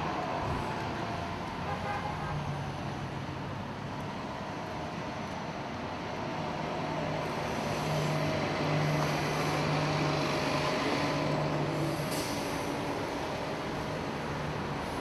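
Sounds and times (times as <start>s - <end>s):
street noise: 0.0s - 15.0s
bus engine humming: 2.6s - 15.0s
short hiss: 11.9s - 12.7s.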